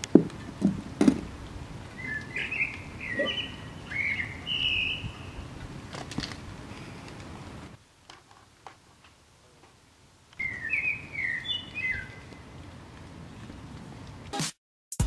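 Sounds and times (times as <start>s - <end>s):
songbird singing: 0.0s - 7.8s, 9.4s - 12.7s
outdoor ambience: 0.0s - 14.5s.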